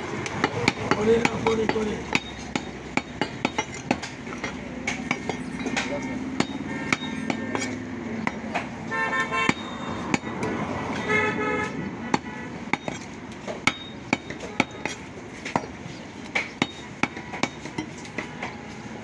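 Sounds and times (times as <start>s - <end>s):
cleaver chopping meat on wood: 0.1s - 8.8s, 12.1s - 18.6s
vehicle horn toots: 6.0s - 7.5s, 8.9s - 10.1s, 10.9s - 12.7s.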